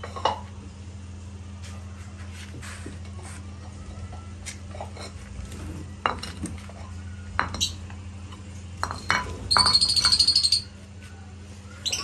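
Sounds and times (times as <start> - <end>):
steady low hum: 0.0 - 12.0
clay bowls clinking on concrete: 4.6 - 10.8.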